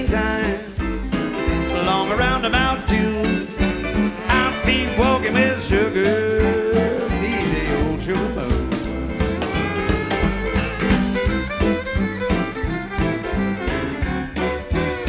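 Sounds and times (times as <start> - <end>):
person singing: 0.0 - 1.0, 1.6 - 10.6
western swing band playing: 0.0 - 15.0
fiddle playing lead: 1.1 - 15.0.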